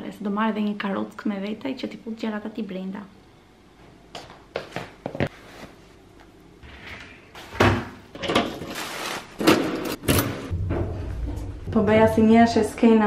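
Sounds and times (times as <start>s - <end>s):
footsteps on wooden floor: 4.2s - 5.4s.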